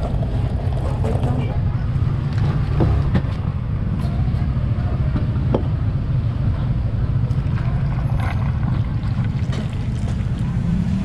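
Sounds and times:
street traffic rumble: 0.0s - 11.0s
drink poured over ice: 7.3s - 10.5s.

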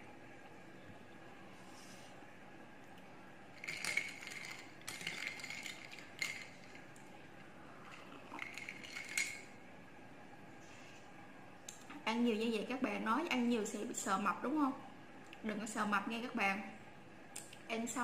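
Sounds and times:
spoon and ice clinking on glass: 3.6s - 6.7s, 8.4s - 9.5s
spoon stirring iced drink: 3.6s - 6.8s, 8.3s - 9.5s.

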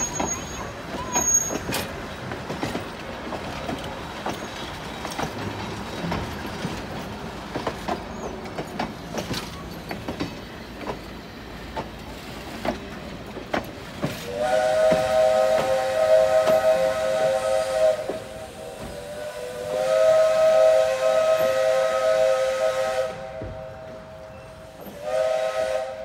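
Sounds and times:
train wheels clacking over rail joints: 0.0s - 20.0s
steam locomotive whistle: 14.2s - 26.0s.

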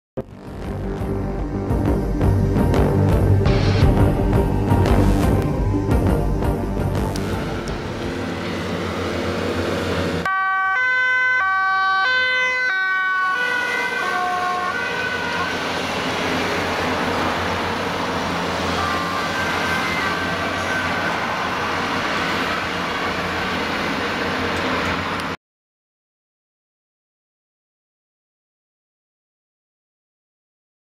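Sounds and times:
traffic noise: 4.4s - 25.4s
two-tone police siren: 10.2s - 23.5s.

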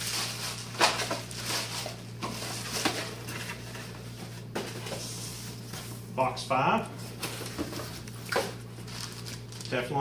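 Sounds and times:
plastic bag crinkling: 0.0s - 3.3s, 8.0s - 10.0s
steady low hum: 0.0s - 10.0s.

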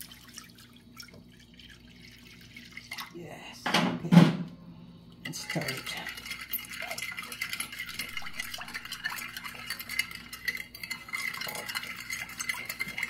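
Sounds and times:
water swishing: 5.3s - 13.0s.

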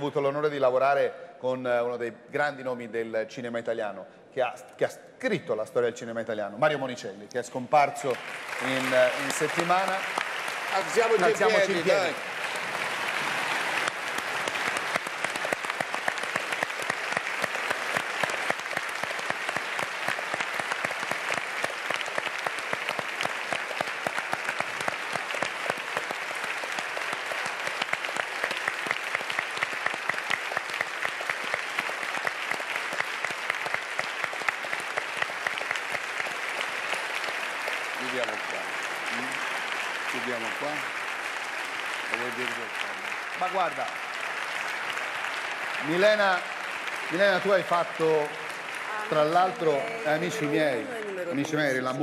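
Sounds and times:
audience applauding: 7.5s - 52.0s.

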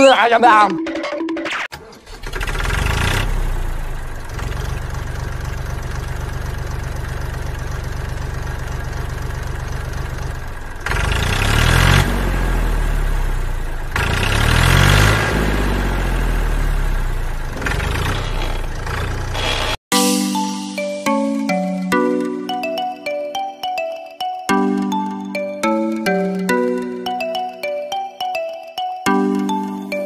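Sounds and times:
tractor engine chugging and revving: 0.8s - 19.9s.

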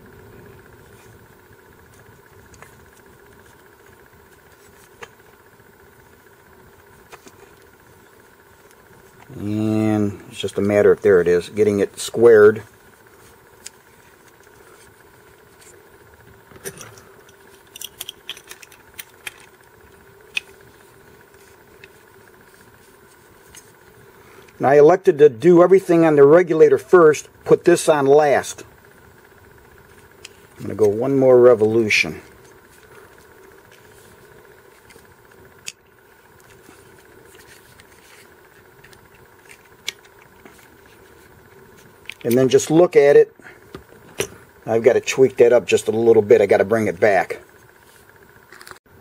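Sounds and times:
low steady hum: 0.0s - 49.0s
wrench and plastic housings clicking: 17.6s - 19.5s.

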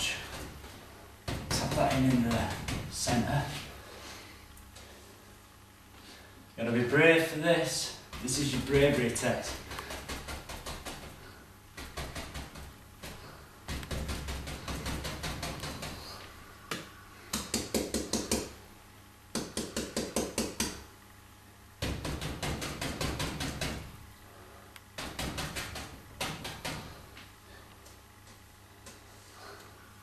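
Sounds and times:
brush tapping on canvas: 8.1s - 18.6s.

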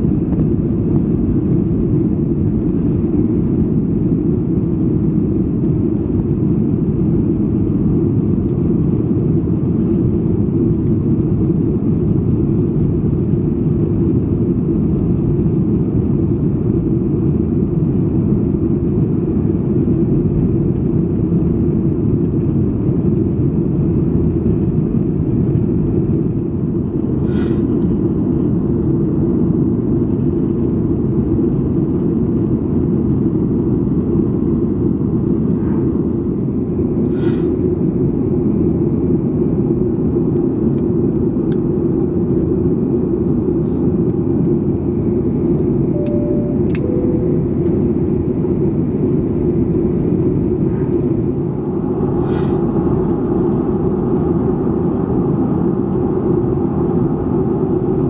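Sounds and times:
jet aircraft rumble: 0.0s - 58.0s
short high chirp: 46.0s - 47.6s.

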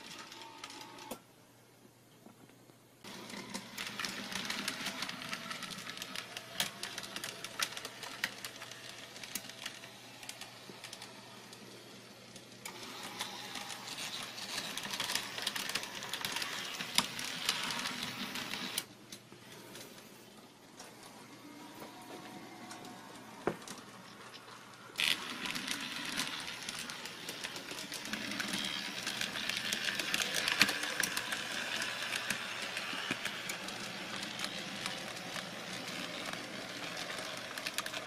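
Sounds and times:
small electric motors whirring: 3.1s - 18.9s, 24.5s - 38.0s.

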